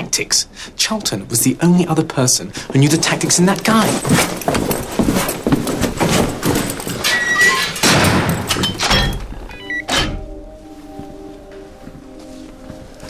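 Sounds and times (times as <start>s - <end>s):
knocks thuds and clatter: 5.9s - 10.2s.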